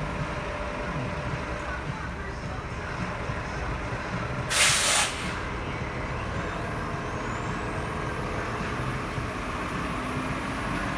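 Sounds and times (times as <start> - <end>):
bus engine and traffic rumble: 0.0 - 10.9.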